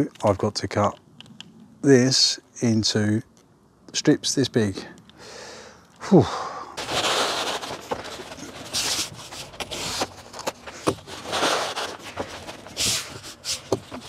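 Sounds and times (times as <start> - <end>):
membrane sheet rustling and scraping: 6.8 - 14.0
light clicks and knocks: 12.0 - 14.0.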